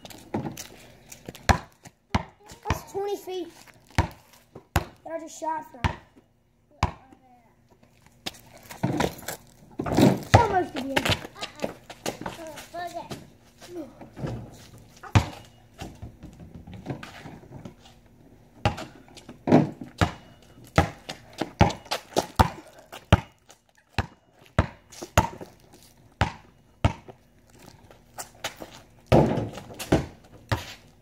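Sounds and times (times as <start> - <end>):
basketball dribbling: 1.3 - 3.0, 3.9 - 5.0, 5.8 - 6.1, 6.8 - 7.0, 9.9 - 12.4, 15.0 - 17.2, 19.5 - 25.6, 26.2 - 27.2.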